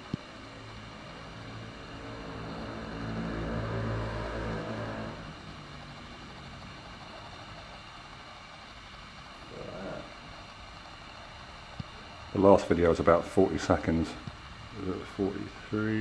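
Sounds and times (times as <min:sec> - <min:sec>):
motor vehicle passing by: 0:01.7 - 0:05.6.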